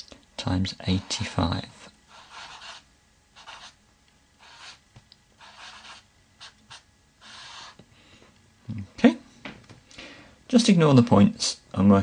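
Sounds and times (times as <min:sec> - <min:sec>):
marker scratching on paper: 0:02.1 - 0:03.8, 0:04.4 - 0:04.8, 0:05.4 - 0:07.8.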